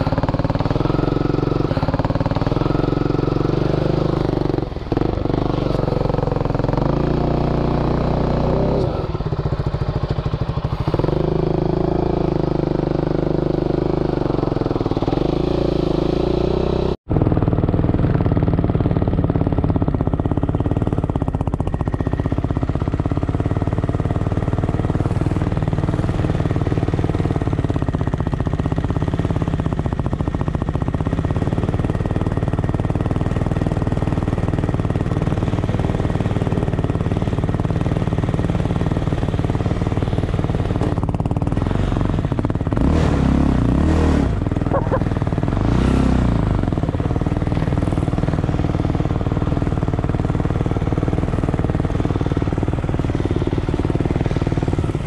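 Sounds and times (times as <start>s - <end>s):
quad engine revving: 0.0s - 21.9s, 22.7s - 55.0s
quad engine idling: 0.0s - 55.0s.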